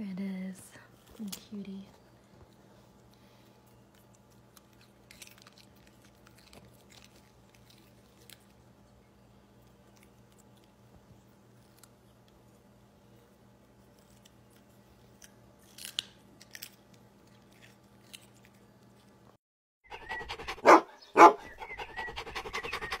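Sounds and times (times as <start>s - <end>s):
room hum: 0.0s - 23.0s
dog crunching a carrot: 2.5s - 8.8s, 9.6s - 12.6s, 13.8s - 19.2s.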